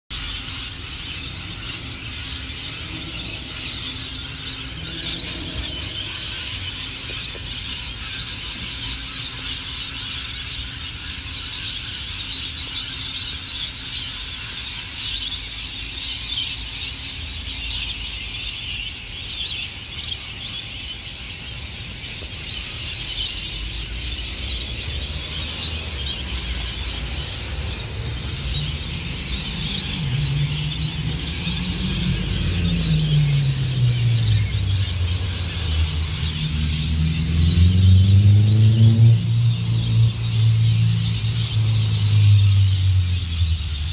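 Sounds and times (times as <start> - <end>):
flock of birds screeching: 0.1 - 43.9
vehicle engine: 23.5 - 43.9.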